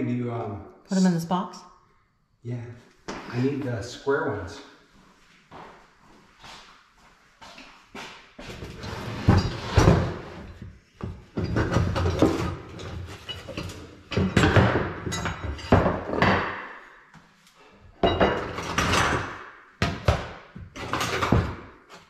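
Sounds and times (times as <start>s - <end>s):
hand tools clattering: 11.4s - 16.3s, 20.8s - 21.6s.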